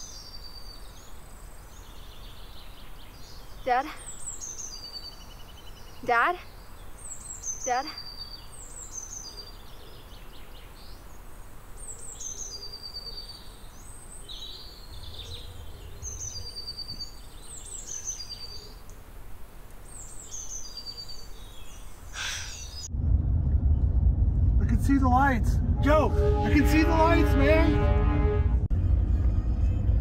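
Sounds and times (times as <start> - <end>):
songbird singing: 0.0 - 22.9.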